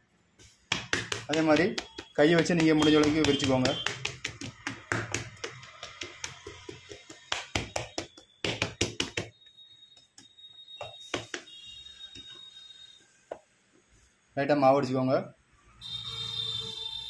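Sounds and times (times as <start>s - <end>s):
hands patting dough: 0.4s - 9.4s, 10.0s - 11.5s.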